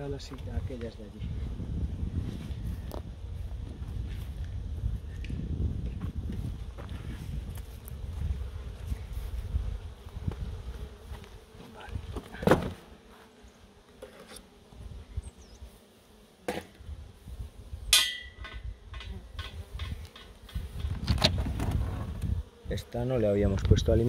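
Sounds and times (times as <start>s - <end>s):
bees buzzing: 5.7s - 24.0s
hive equipment knocking: 18.0s - 21.8s.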